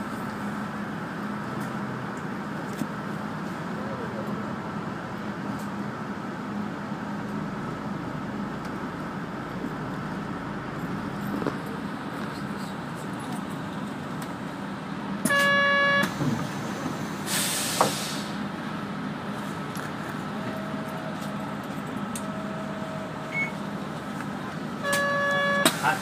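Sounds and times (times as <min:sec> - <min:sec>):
bus engine and road noise: 0:00.0 - 0:26.0
vehicle horn: 0:15.2 - 0:16.1, 0:24.8 - 0:25.9
short hiss: 0:17.3 - 0:18.4.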